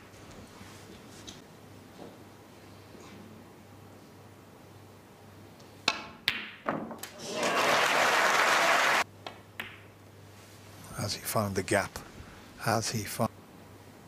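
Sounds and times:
audience applause: 7.1 - 9.0.

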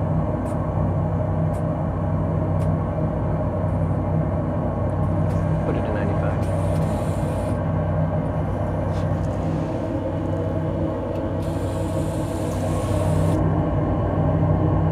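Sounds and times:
three-d printer machine hum: 5.2 - 13.4.

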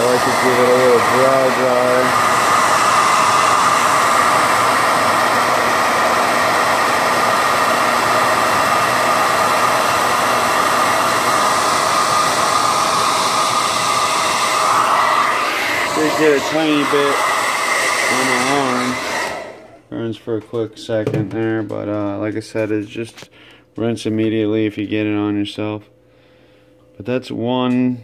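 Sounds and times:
hair dryer running: 0.0 - 19.9.

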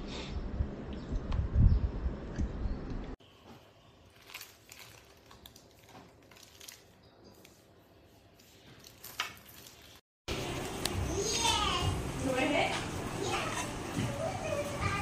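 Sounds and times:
plastic wrapping crinkling: 4.0 - 7.6, 8.4 - 10.9.

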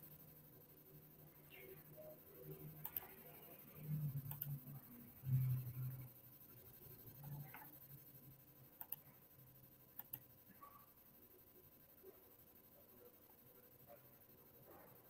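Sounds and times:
faint low hum: 0.0 - 15.0
soft sharp clicks: 2.8 - 3.2, 4.2 - 4.6, 8.8 - 9.1, 10.0 - 10.3.

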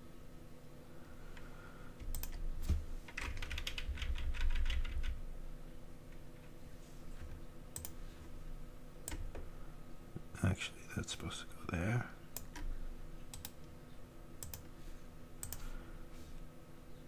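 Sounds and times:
faint steady hum: 0.0 - 17.0
computer keyboard keystrokes: 2.0 - 2.4, 3.1 - 5.2, 7.8 - 8.0, 13.3 - 13.6, 14.4 - 14.7, 15.4 - 15.6.

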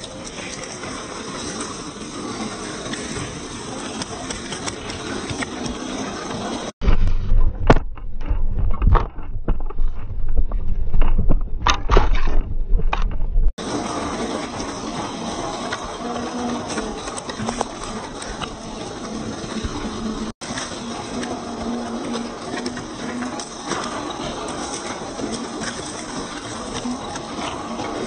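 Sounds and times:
toy car tyres crunching gravel: 13.6 - 28.0.

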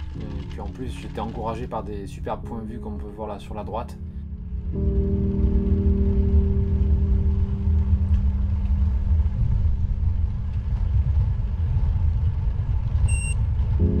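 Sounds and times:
wind buffeting microphone: 4.7 - 14.0.

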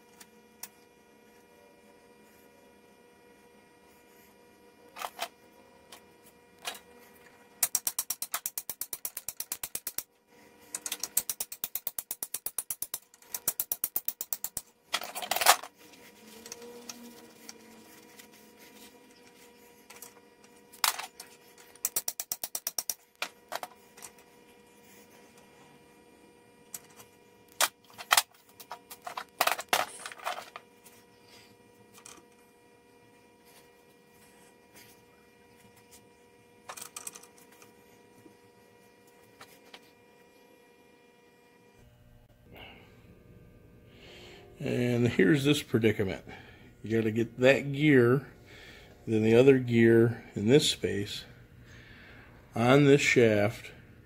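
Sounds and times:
rapid metallic clicking: 7.6 - 10.1, 10.8 - 14.7, 21.8 - 23.0.

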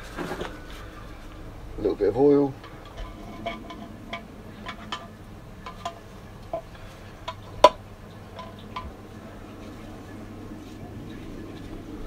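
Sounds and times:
oil can pump clicks: 2.6 - 9.0.

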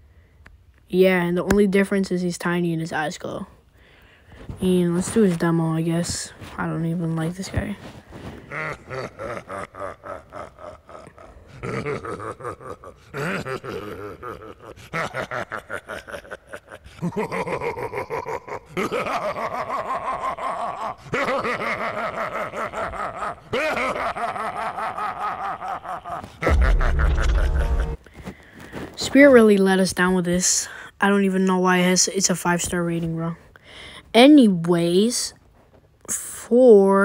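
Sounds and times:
recorded laughing voice: 8.4 - 28.0.

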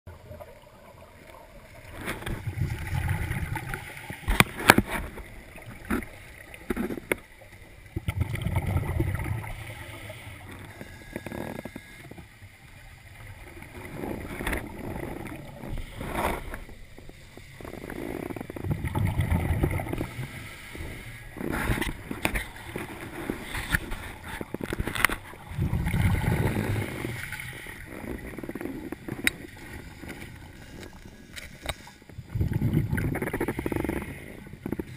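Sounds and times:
exhaled bubbles rumbling: 0.1 - 10.8, 12.8 - 20.3, 21.3 - 31.0, 32.1 - 34.9
regulator breathing underwater: 8.8 - 12.2, 13.9 - 29.2, 29.9 - 34.9.

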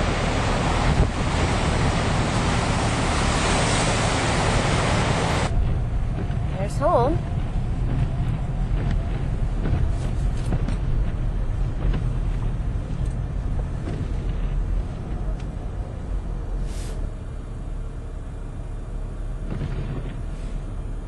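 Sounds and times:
car driving on wet road: 0.0 - 21.0
burst of hiss: 16.6 - 17.0.

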